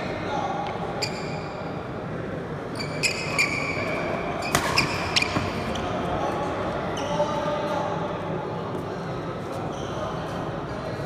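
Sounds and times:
rackets hitting shuttlecock: 0:04.4 - 0:05.6.

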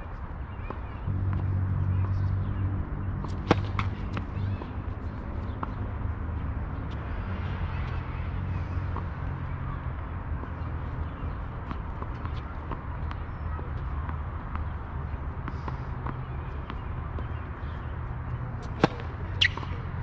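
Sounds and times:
tennis racket striking ball: 0:03.2 - 0:04.5, 0:18.6 - 0:19.8
tennis ball bouncing on hard court: 0:03.2 - 0:05.8, 0:11.1 - 0:20.0.

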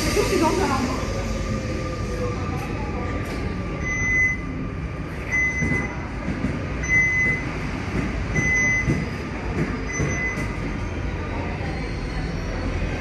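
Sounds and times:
train rumbling: 0:00.0 - 0:13.0
high electronic beep: 0:03.8 - 0:04.4, 0:09.9 - 0:10.6.

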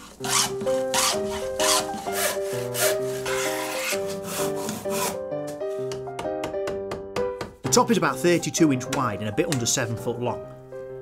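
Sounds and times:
hand plane shaving wood: 0:00.0 - 0:05.2
background music: 0:00.0 - 0:11.0.

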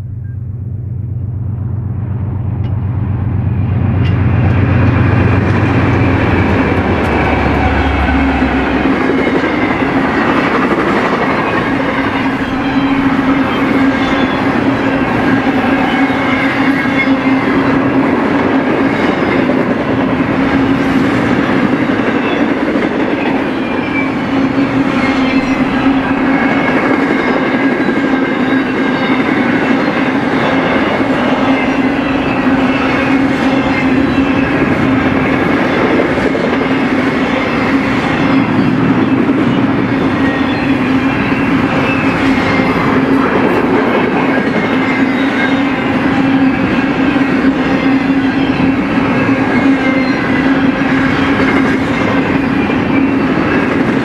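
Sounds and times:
constant hum: 0:00.0 - 0:17.6
steel wheels rolling on rail: 0:00.0 - 0:54.0.

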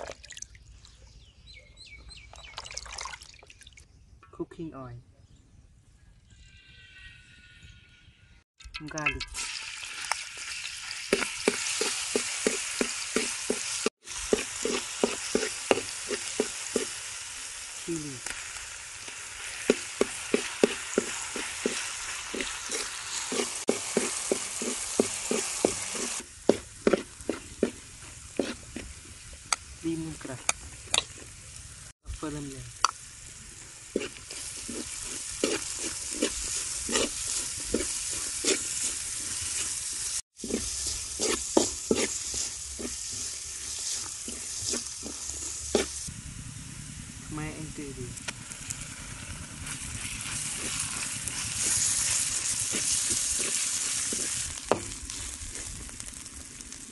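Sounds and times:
garlic sizzling in oil: 0:09.1 - 0:46.1, 0:46.7 - 0:56.9
spatula scraping a pan: 0:11.1 - 0:17.1, 0:19.1 - 0:29.0, 0:33.9 - 0:46.1, 0:49.6 - 0:56.2.

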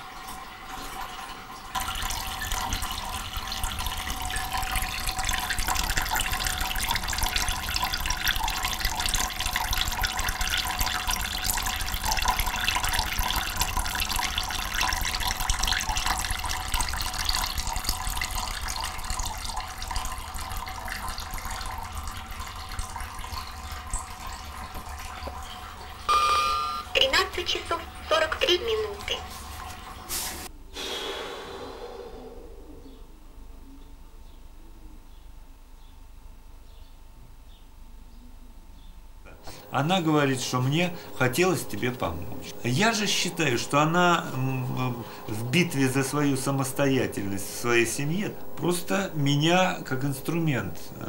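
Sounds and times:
water splashing onto frying pan: 0:00.0 - 0:26.6
tap water running into sink: 0:00.0 - 0:30.5, 0:39.3 - 0:51.0.

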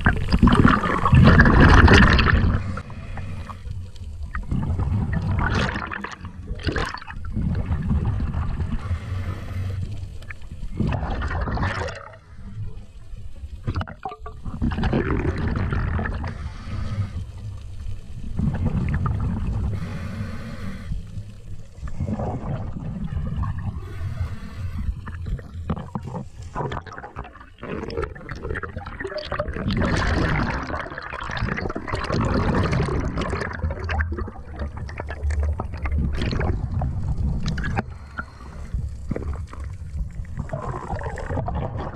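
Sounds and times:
water rushing and sloshing: 0:00.0 - 0:41.9.

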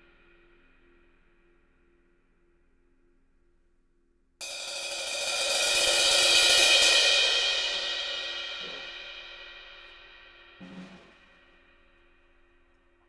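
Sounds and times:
ride cymbal struck with drumstick: 0:04.4 - 0:11.4.

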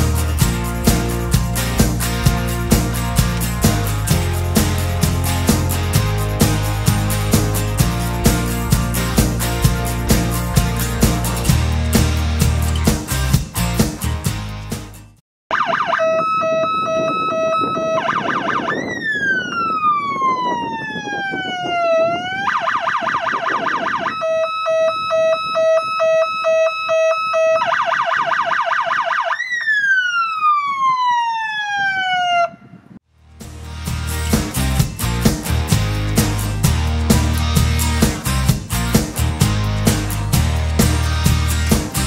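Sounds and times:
fire engine electronic siren: 0:15.5 - 0:33.0.

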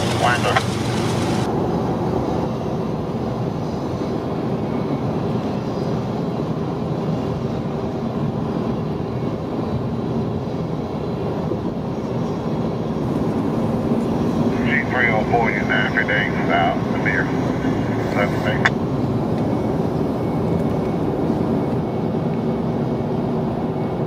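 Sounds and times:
train wheels rumbling on rails: 0:00.0 - 0:24.0
low steady hum: 0:13.0 - 0:22.5.

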